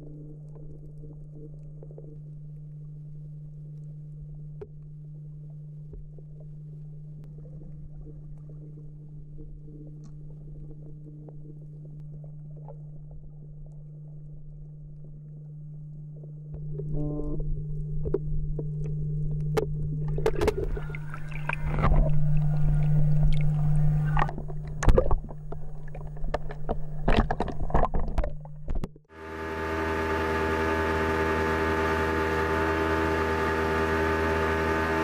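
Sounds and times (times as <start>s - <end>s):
underwater hum and rumbling: 0.0s - 35.0s
water splashing and sloshing: 4.2s - 16.8s, 17.5s - 29.1s.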